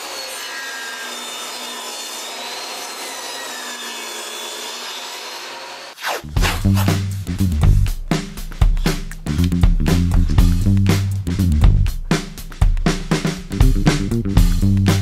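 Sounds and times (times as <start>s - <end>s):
table saw cutting wood: 0.0s - 7.1s
music: 6.1s - 15.0s.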